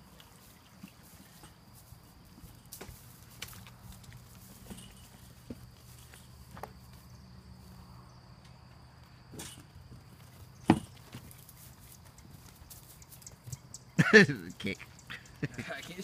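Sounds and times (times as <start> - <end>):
hooves thudding on dirt: 0.0 - 7.7, 8.4 - 16.0.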